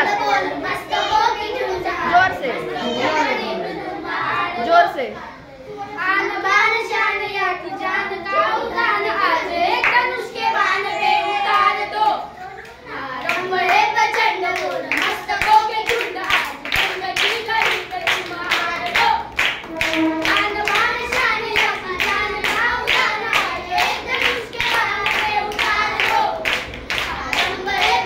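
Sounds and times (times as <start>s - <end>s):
boys singing: 6.8s - 28.0s
rhythmic hand-clapping: 9.8s - 10.2s, 12.0s - 28.0s.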